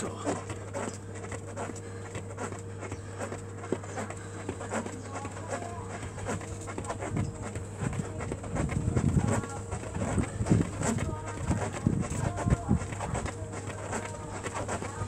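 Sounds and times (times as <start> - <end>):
feet patter on workout mat: 0.0 - 15.0
man breathing hard: 1.6 - 5.0.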